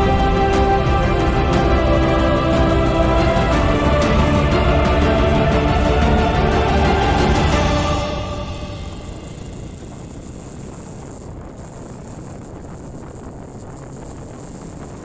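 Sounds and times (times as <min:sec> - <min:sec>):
background music: 0:00.0 - 0:10.6
motorcycle engine: 0:00.0 - 0:15.0
wind rushing on microphone: 0:07.6 - 0:15.0.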